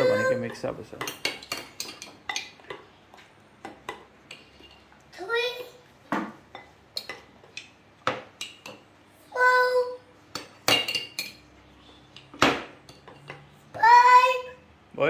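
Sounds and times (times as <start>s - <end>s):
spoons clinking on bowls: 0.0s - 5.0s, 6.5s - 8.9s, 10.3s - 11.5s.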